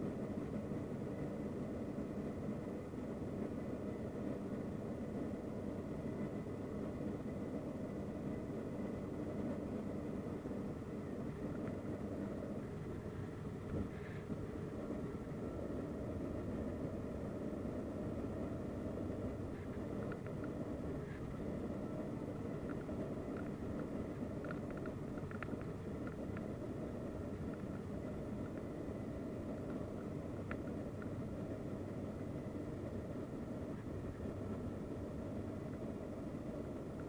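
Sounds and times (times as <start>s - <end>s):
turboprop cabin drone: 0.0s - 37.0s.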